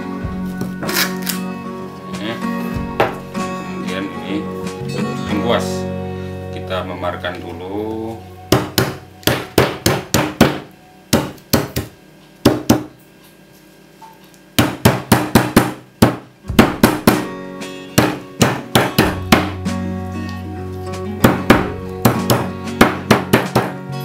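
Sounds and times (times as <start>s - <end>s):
stone pestle knocking on wood: 2.8s - 3.2s, 8.5s - 12.9s, 14.6s - 17.3s, 18.0s - 19.6s, 21.2s - 23.8s.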